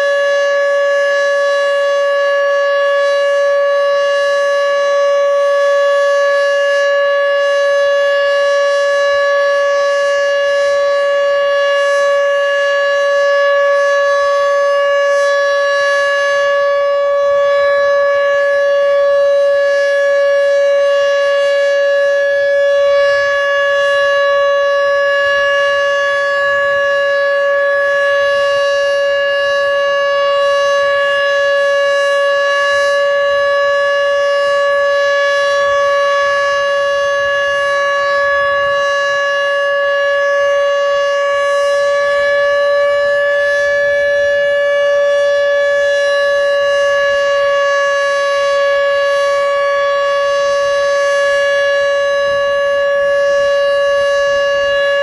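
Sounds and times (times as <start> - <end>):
warning siren wavering tone: 0.0 - 55.0.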